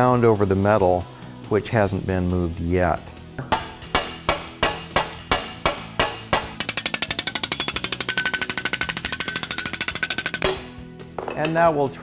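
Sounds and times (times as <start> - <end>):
hammer striking sheet metal: 3.4 - 10.7.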